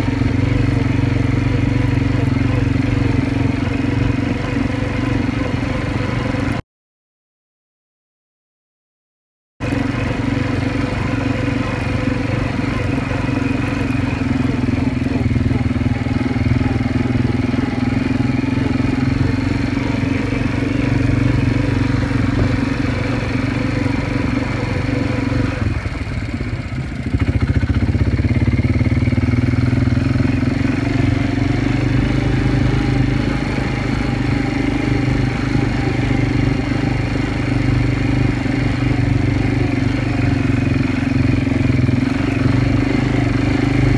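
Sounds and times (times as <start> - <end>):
quad bike engine: 0.0 - 6.6, 9.6 - 43.9.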